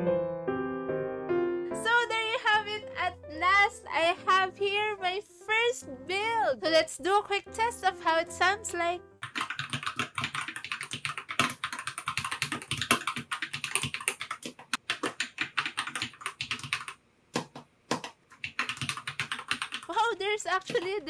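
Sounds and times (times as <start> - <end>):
mechanical keyboard typing: 9.2 - 21.0.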